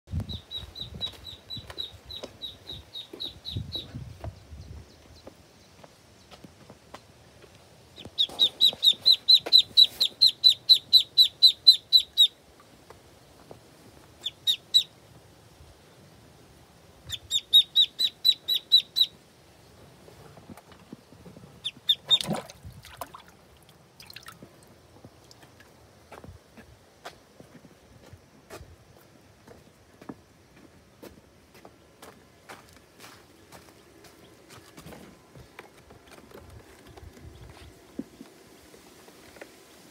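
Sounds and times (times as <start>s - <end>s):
duckling peeping: 0.1s - 4.0s, 7.9s - 12.4s, 14.2s - 15.0s, 17.0s - 19.2s, 21.6s - 22.3s.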